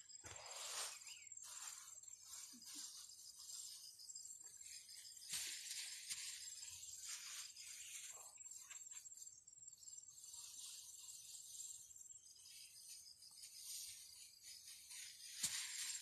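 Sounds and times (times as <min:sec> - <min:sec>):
crickets trilling: 0:00.0 - 0:16.0
leaves rustling: 0:12.6 - 0:16.0.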